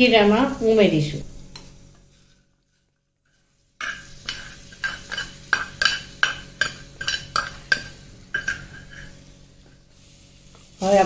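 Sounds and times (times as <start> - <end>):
metal spoon clinking on pan: 3.8 - 9.1.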